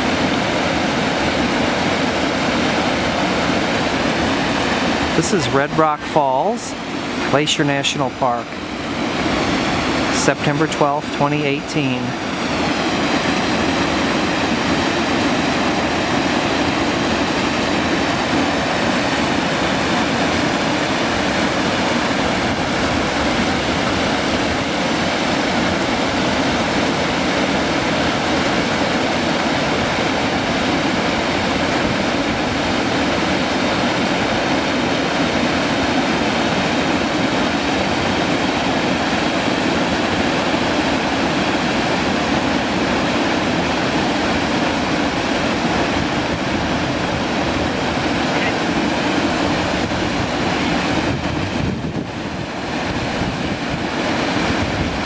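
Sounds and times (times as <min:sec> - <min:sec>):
waterfall rushing: 0:00.0 - 0:55.0.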